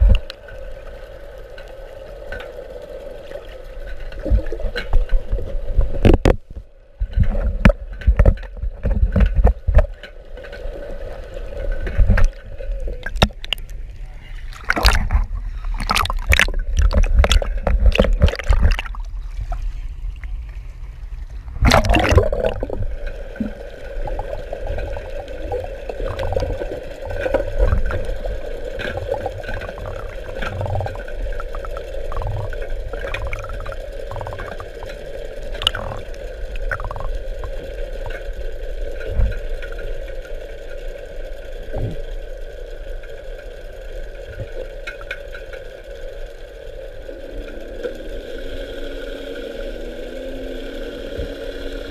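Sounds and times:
water sloshing and gurgling: 0.0 - 40.9
steady mechanical hum: 0.0 - 51.9.

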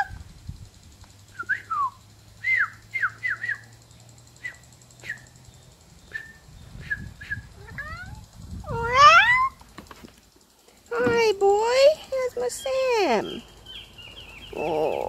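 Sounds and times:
birds chirping: 10.4 - 15.0.

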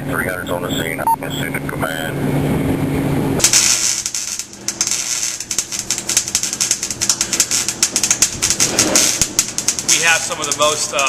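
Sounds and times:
electric arc welding crackle: 3.4 - 11.0.

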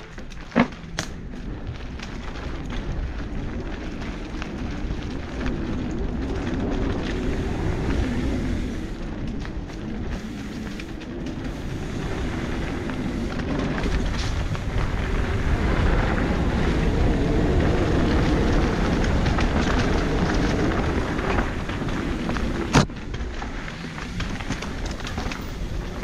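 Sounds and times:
bike clicks and rattles: 0.0 - 26.0
tyres rumbling over dirt: 0.0 - 26.0.

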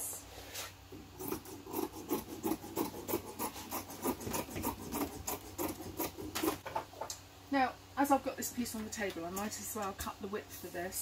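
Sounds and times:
scissors snipping fabric: 1.2 - 6.6.

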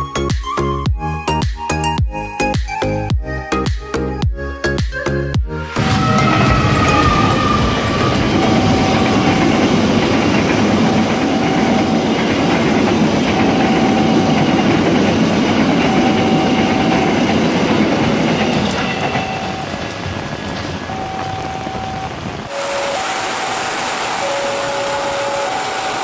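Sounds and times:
train passing at speed: 5.7 - 26.0
wheels clattering over rail joints: 5.8 - 22.4.

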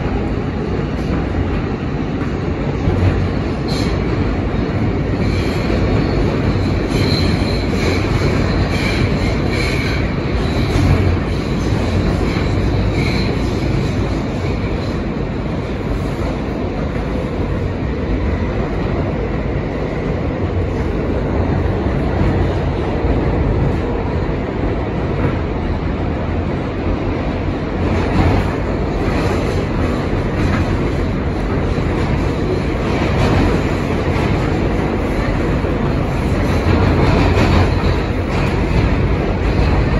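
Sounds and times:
subway wheels rumbling on rail: 0.0 - 39.9.

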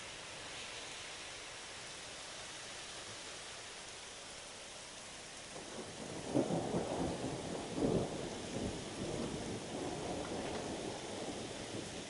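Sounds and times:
steady hiss: 0.0 - 12.0
thunder rumbling: 5.5 - 12.0.

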